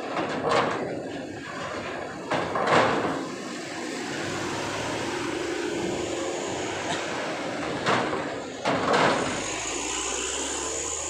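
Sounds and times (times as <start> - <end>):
clattering on steel ramp: 0.0 - 4.0, 5.7 - 9.8
vehicle noise: 0.0 - 11.0.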